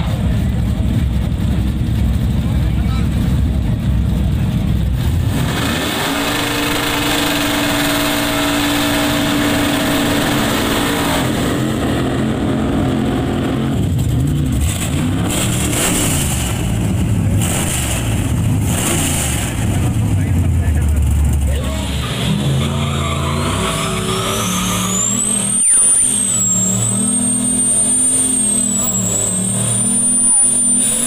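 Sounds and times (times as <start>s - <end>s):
truck engine revving: 0.0s - 31.0s
tyres squealing: 21.6s - 31.0s.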